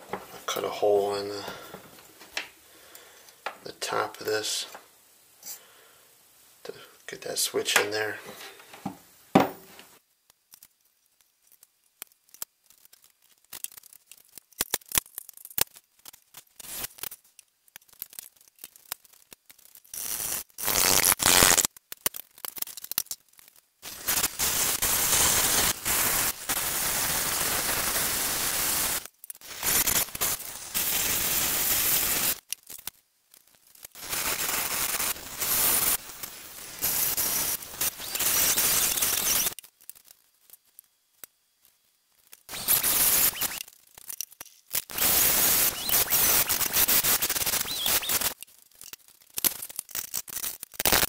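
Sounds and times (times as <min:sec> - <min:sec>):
rotary tool grinding: 0:36.8 - 0:39.6, 0:42.5 - 0:51.0.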